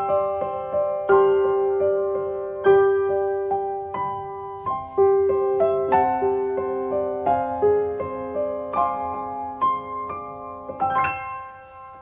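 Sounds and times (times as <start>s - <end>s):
piano notes and chords: 0.0s - 12.0s.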